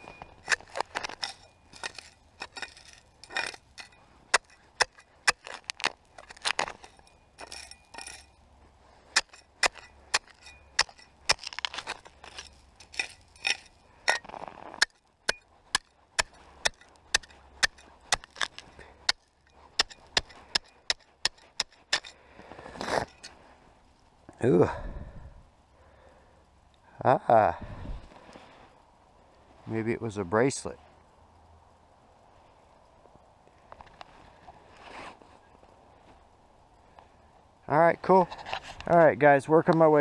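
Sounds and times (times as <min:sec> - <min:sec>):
knife striking gravel: 0:00.0 - 0:23.4
scraping rustles: 0:33.8 - 0:36.2, 0:38.1 - 0:38.9.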